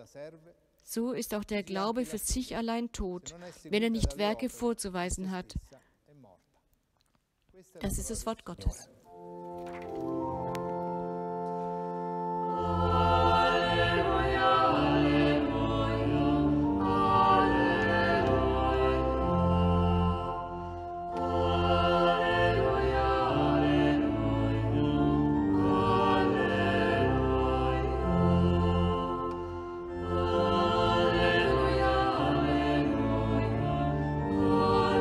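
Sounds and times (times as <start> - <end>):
held accompaniment notes: 9.1 - 35.0
choir singing sacred chant: 12.4 - 35.0.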